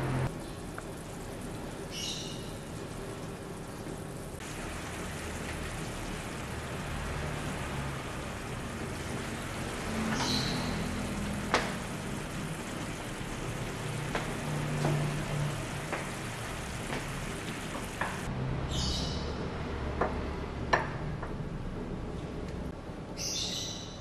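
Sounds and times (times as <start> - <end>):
water boiling hard: 0.0 - 18.3.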